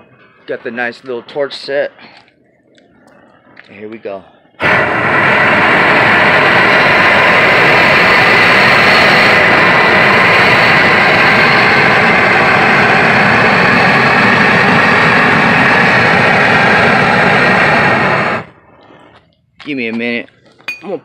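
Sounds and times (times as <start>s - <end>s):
gas torch hissing: 2.8s - 19.2s.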